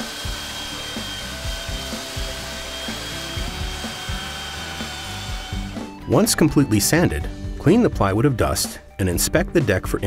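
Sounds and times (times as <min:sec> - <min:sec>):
belt sander sanding wood: 0:00.0 - 0:05.9
background music: 0:00.0 - 0:10.0.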